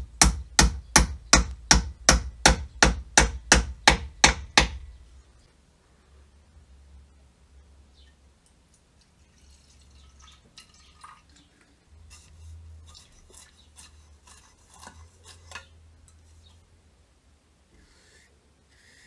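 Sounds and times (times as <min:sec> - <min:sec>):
liquid poured into plastic cup: 0:08.7 - 0:11.9.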